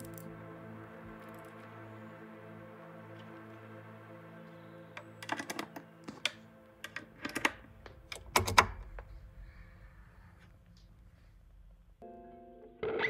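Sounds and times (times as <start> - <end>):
jack plugs clicking and clattering: 5.0 - 9.1.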